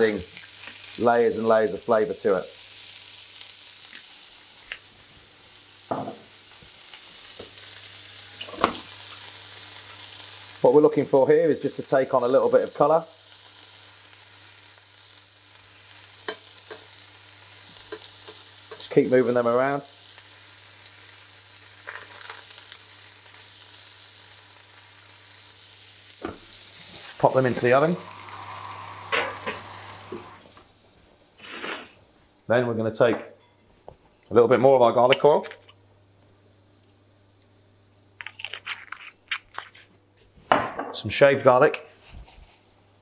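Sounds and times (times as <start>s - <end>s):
vegetables sizzling in hot oil: 0.0s - 32.3s.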